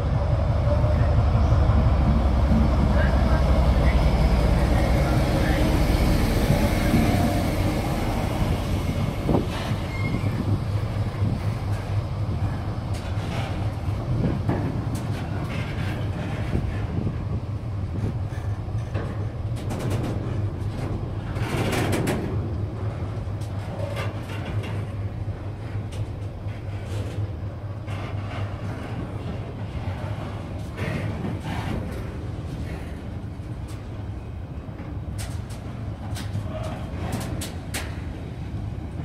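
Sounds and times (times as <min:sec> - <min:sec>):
freight train wheels rumbling: 0:00.0 - 0:39.0
train clatter: 0:00.0 - 0:39.0
train wheel clicks and knocks: 0:06.4 - 0:34.0, 0:34.7 - 0:38.3.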